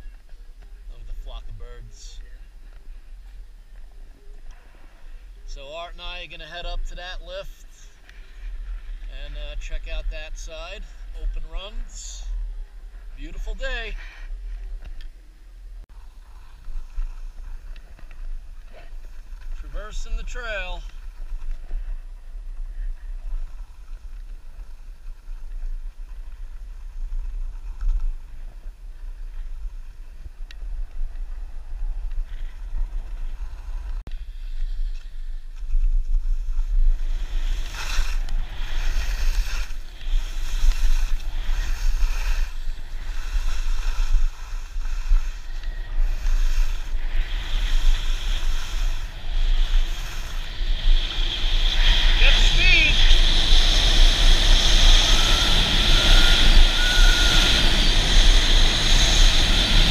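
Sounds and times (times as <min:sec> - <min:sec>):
wind rumbling on microphone: 0:07.8 - 0:59.9
skis scraping on snow: 0:16.0 - 0:22.0, 0:32.2 - 0:59.9.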